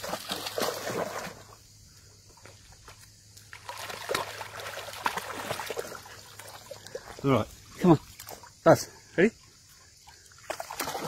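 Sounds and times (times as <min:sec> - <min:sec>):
dog splashing through water: 0:00.0 - 0:01.6, 0:02.4 - 0:08.6, 0:10.0 - 0:11.0.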